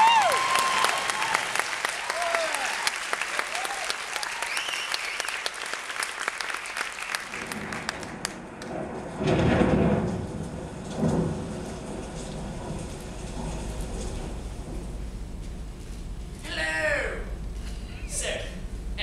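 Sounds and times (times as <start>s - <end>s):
audience applauding: 0.0s - 8.8s
deep bursts of sound: 7.3s - 19.0s.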